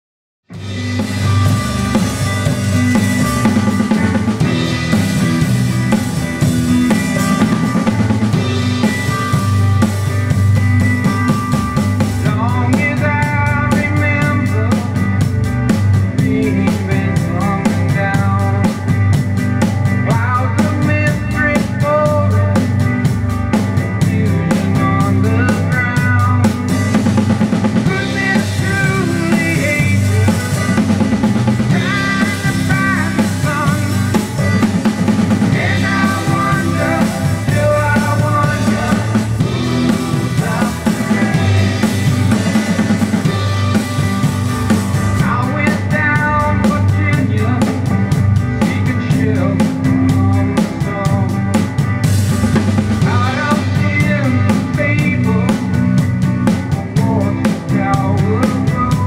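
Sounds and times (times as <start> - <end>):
drum kit playing: 0.5 - 59.0
rock recording with guitars: 0.5 - 59.0
fast high ticking: 26.7 - 46.1.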